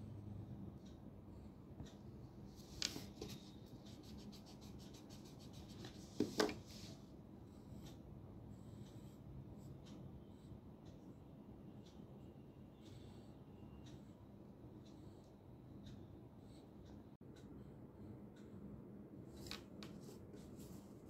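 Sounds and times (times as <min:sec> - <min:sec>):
pencil scratching on paper: 0:02.6 - 0:08.0
eraser rubbing on paper: 0:03.3 - 0:07.0.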